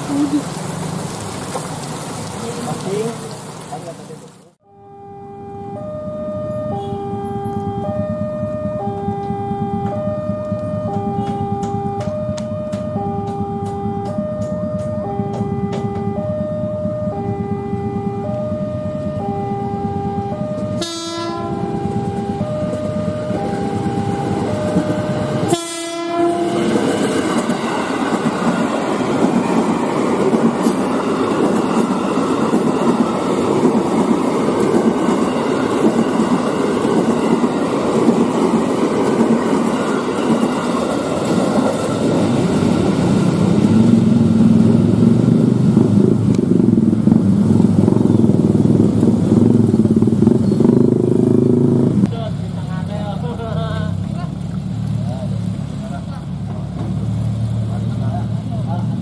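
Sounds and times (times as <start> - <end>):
train rumbling past: 4.9 - 59.0
train horn blast: 6.6 - 8.0, 10.9 - 12.1, 19.5 - 22.5, 25.2 - 26.9.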